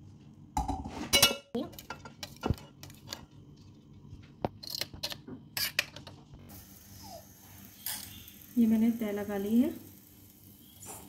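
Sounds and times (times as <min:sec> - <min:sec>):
metal spoon scraping cooking pot: 0:04.6 - 0:05.9
steady hiss: 0:06.5 - 0:11.0.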